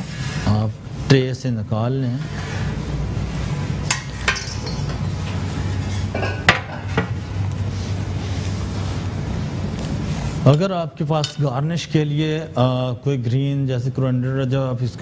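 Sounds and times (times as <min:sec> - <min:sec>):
steady low hum: 0:00.0 - 0:15.0
metal lifter clinking on baking tray: 0:03.9 - 0:05.1.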